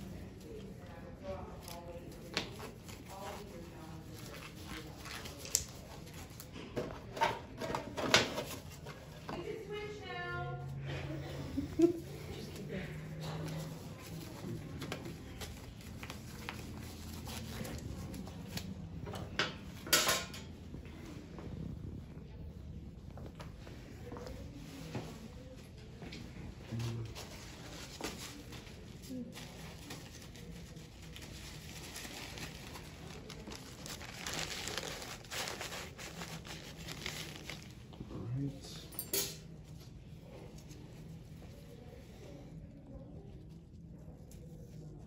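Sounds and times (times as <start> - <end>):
paper rustling: 27.1 - 37.8.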